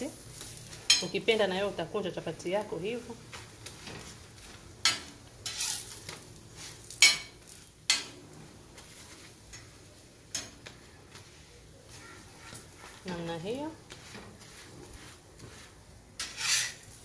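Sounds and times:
flatbread sizzling: 0.0 - 17.0
metal spatula scraping griddle: 3.6 - 9.7, 10.3 - 17.0.

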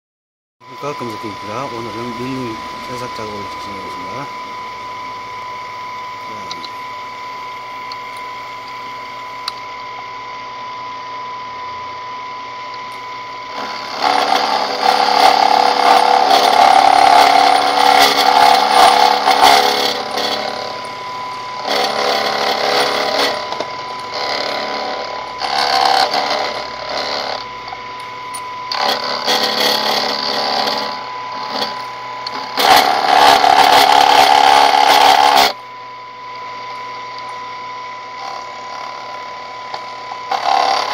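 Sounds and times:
milling machine spindle whine: 0.6 - 40.9
rough metal cutting noise: 0.7 - 5.6, 12.8 - 35.6, 36.9 - 40.9.

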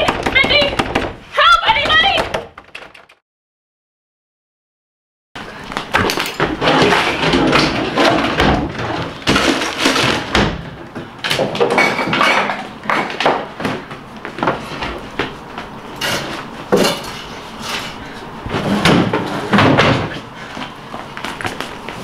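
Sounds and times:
knocks thumps and bangs: 0.0 - 3.0.

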